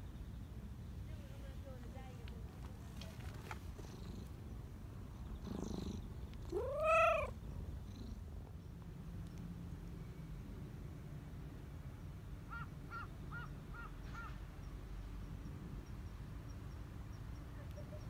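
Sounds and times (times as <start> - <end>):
cat purring: 3.4 - 8.6
cat meow: 6.5 - 7.4.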